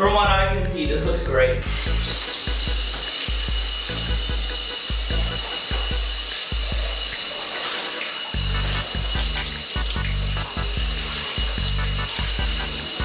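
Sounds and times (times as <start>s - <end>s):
background music with bass beat: 0.0s - 7.2s, 8.4s - 13.0s
bathtub tap running: 1.6s - 13.0s
water splashing onto jeans: 6.0s - 13.0s.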